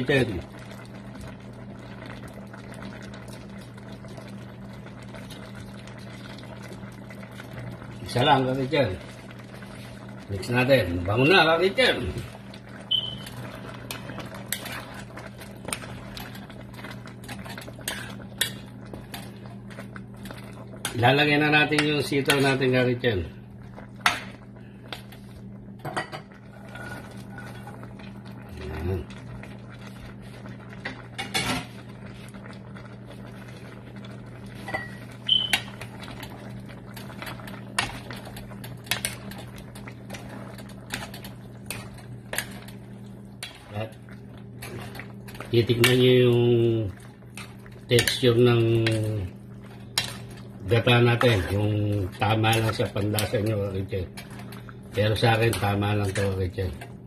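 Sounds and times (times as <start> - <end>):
steady low hum: 0.0 - 57.0
spoon stirring thick stew: 43.4 - 56.8.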